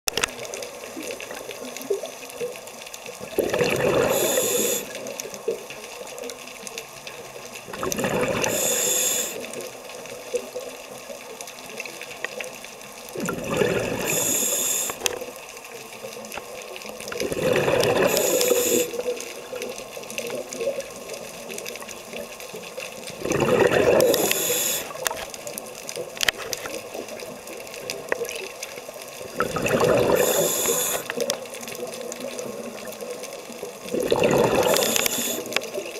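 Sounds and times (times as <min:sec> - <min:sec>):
diver exhaling bubbles: 0:03.2 - 0:05.0, 0:07.7 - 0:09.4, 0:13.2 - 0:15.1, 0:17.1 - 0:19.1, 0:23.1 - 0:25.2, 0:29.2 - 0:31.2, 0:33.8 - 0:35.5
regulator hiss: 0:03.8 - 0:05.2, 0:08.2 - 0:09.7, 0:13.7 - 0:15.4, 0:17.8 - 0:19.5, 0:24.0 - 0:25.3, 0:29.6 - 0:31.3, 0:34.4 - 0:35.8.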